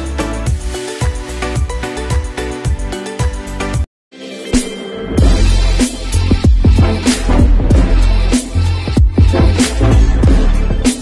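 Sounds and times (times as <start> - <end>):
sliding deep bass notes: 5.2 - 10.8.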